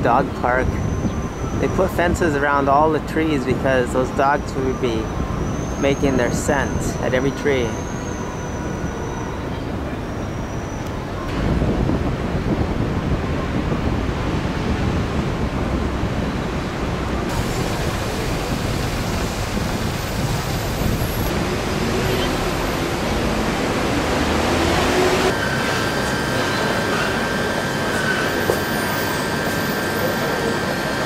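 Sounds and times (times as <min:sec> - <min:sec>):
city traffic: 0:00.0 - 0:31.0
wind on microphone: 0:00.2 - 0:02.4, 0:10.9 - 0:25.4
faint steady high tone: 0:25.4 - 0:31.0.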